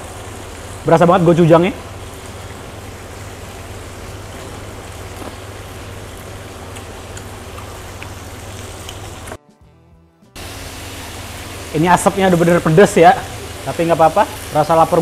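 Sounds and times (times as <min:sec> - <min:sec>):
meat sizzling on grill pan: 0:10.4 - 0:15.0.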